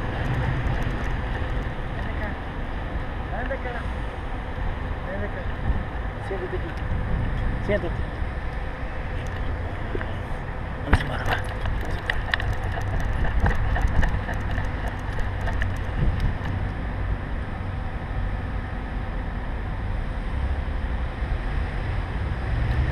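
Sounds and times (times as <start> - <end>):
scattered clicks: 0.0 - 2.3, 10.9 - 16.8
camera rubbing and knocking rumble: 0.0 - 3.7, 6.5 - 17.1.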